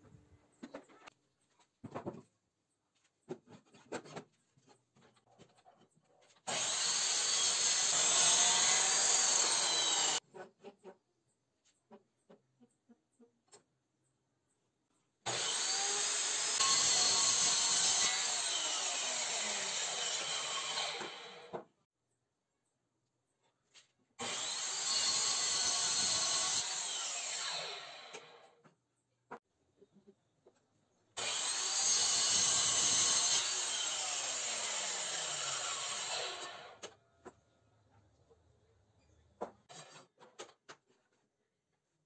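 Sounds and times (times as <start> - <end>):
power tool working wood: 6.5 - 10.2, 15.3 - 21.6, 24.2 - 28.4, 31.2 - 36.8.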